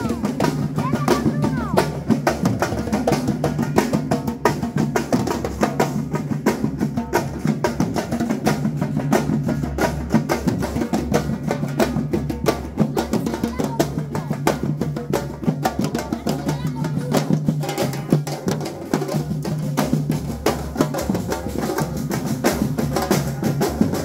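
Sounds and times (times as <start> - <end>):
fast samba drumming: 0.0 - 24.0.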